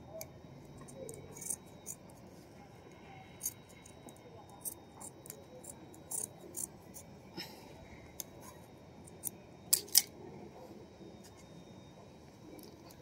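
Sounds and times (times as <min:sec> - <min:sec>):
scissors snipping fabric: 0:00.8 - 0:02.0, 0:06.1 - 0:07.0.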